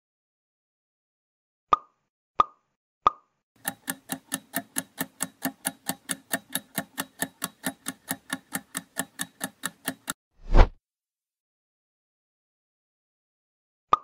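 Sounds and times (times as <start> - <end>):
fast clock-like ticking: 3.6 - 10.2
short whoosh effect: 10.4 - 10.8.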